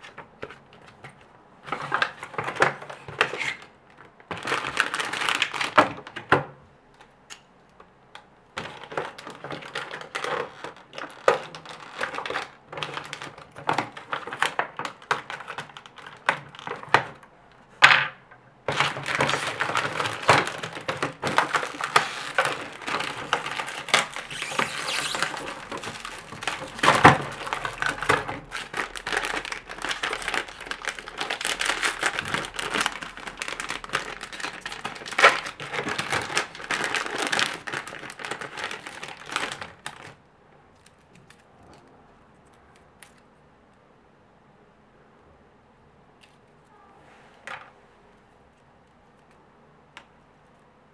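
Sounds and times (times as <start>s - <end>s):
plastic bags crinkling: 0.0s - 6.3s, 8.6s - 17.2s, 18.6s - 41.5s.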